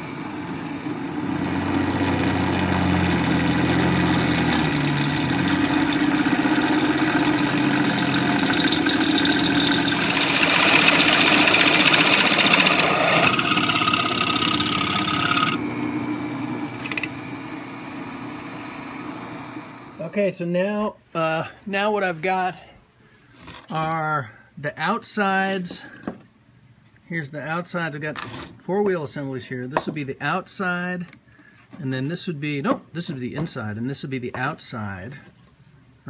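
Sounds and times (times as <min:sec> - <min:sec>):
drill press cutting metal: 0:01.2 - 0:15.6, 0:16.4 - 0:17.2.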